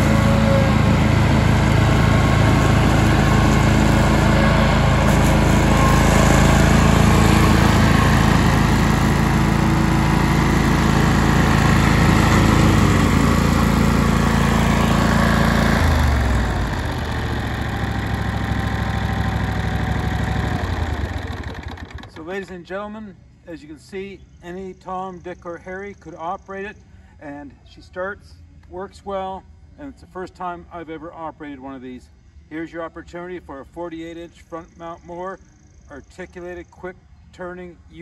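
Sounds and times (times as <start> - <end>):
mower engine running: 0.0 - 22.5.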